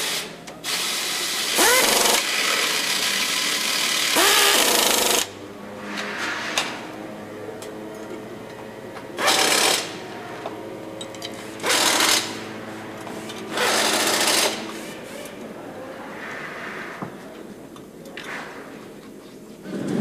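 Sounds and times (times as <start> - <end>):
power tool bursts: 0.0 - 5.3, 9.2 - 10.0, 11.4 - 12.5, 13.3 - 14.8
factory machinery hum: 0.0 - 20.0.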